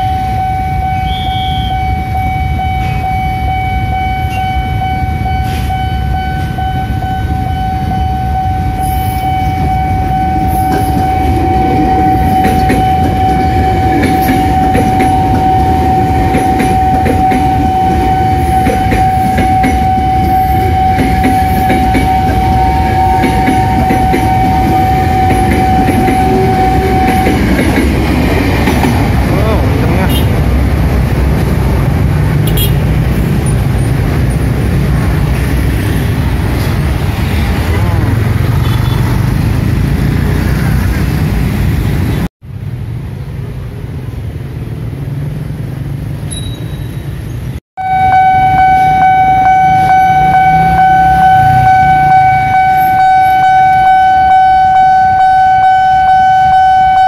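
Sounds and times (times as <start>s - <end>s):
level-crossing alarm tone: 0.0s - 28.7s, 47.8s - 57.0s
train wheels clattering on rails: 20.6s - 29.4s.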